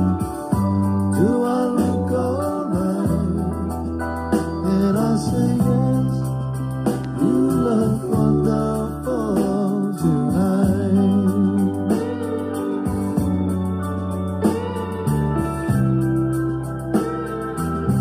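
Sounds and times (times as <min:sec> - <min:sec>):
person singing: 0:00.0 - 0:13.2
bass and keyboard chords: 0:00.0 - 0:18.0.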